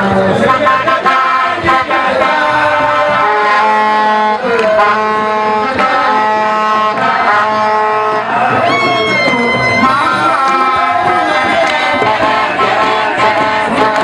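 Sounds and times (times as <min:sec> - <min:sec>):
drum strikes: 0:00.0 - 0:14.0
dance music: 0:06.8 - 0:14.0.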